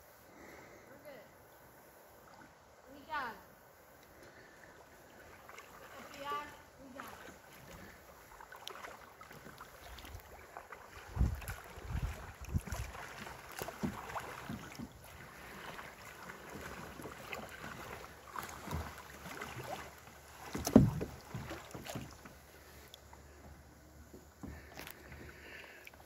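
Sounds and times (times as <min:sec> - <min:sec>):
paddle splashing in water: 0:02.1 - 0:03.3, 0:03.9 - 0:26.0
paddle knocks: 0:11.0 - 0:22.4, 0:24.1 - 0:25.4.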